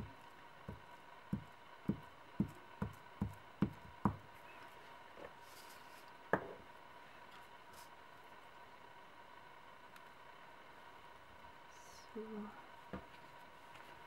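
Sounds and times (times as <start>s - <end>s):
glue stick knocking on paper: 0.7s - 4.2s.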